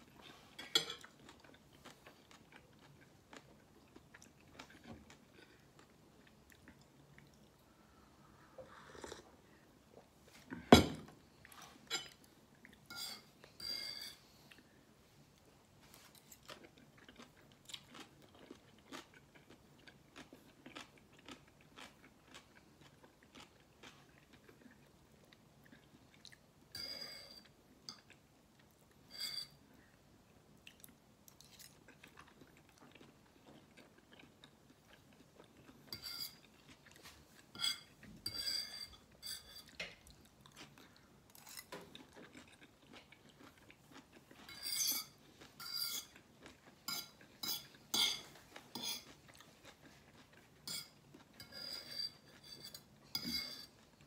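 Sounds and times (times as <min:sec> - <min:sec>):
chewing noodles: 0:40.1 - 0:51.6.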